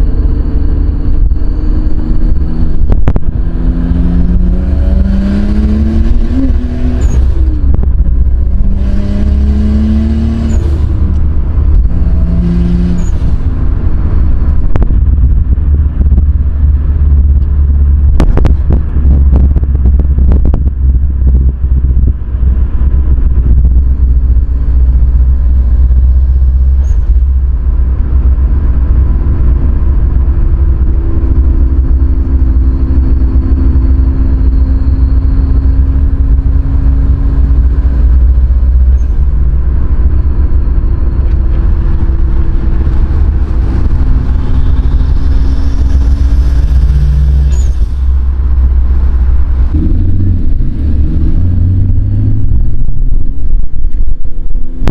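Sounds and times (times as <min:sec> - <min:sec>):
car engine drone in cabin: 0:00.0 - 0:54.9.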